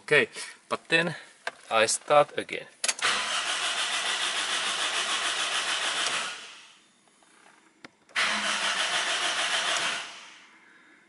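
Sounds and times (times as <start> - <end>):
car engine cranking: 2.8 - 6.6, 8.1 - 10.4.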